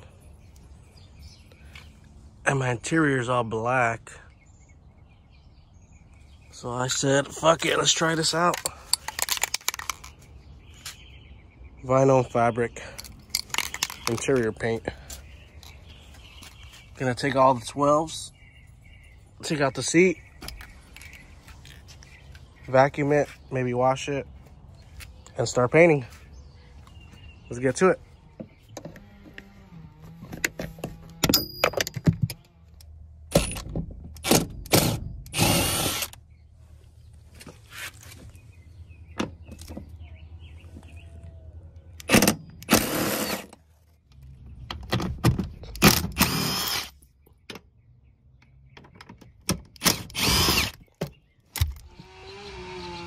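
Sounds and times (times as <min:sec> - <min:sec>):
cordless drill spinning bolts: 0:34.2 - 0:36.2, 0:42.0 - 0:43.6, 0:45.8 - 0:46.9, 0:49.8 - 0:50.8.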